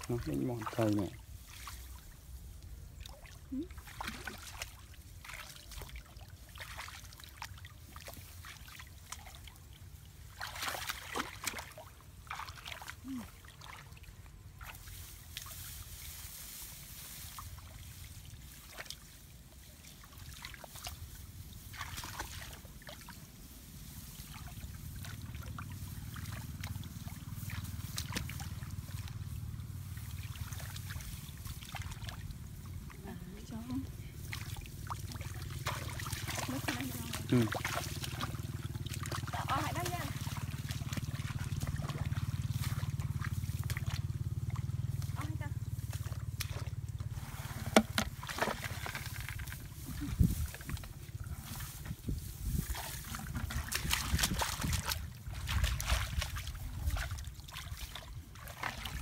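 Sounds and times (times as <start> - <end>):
hands splashing in muddy water: 0.0 - 23.4, 24.1 - 59.0
low rumble: 23.8 - 57.1.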